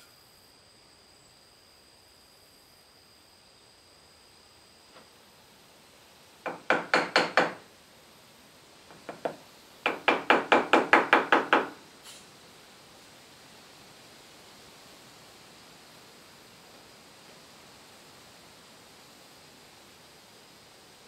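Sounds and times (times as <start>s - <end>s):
hammer striking wood: 6.4s - 7.6s, 9.0s - 11.8s.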